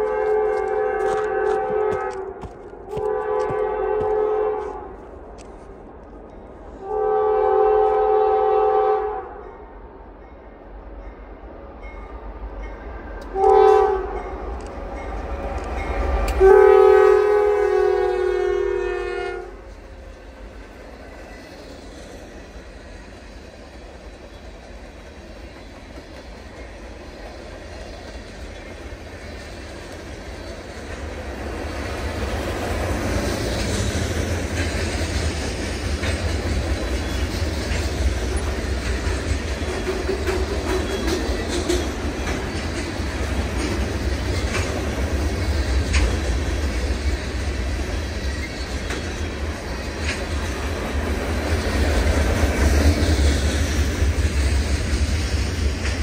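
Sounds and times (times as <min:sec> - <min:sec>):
locomotive horn blasts: 0:00.0 - 0:05.0, 0:06.8 - 0:09.4, 0:13.3 - 0:14.3, 0:16.2 - 0:19.7
train rumble: 0:00.0 - 0:56.0.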